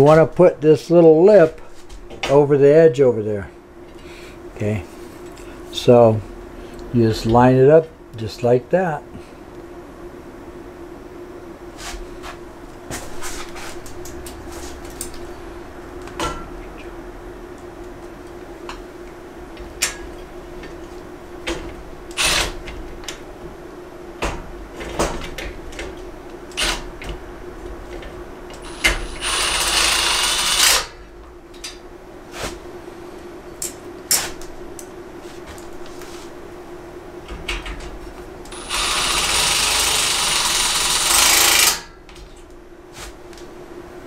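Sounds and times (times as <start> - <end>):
steady low hum: 0.0 - 44.0
cordless drill whining: 28.6 - 30.8, 38.5 - 41.7.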